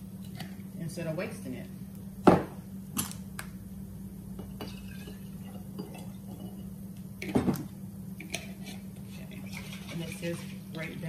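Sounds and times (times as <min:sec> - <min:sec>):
glass jar clinking: 0:04.4 - 0:06.8.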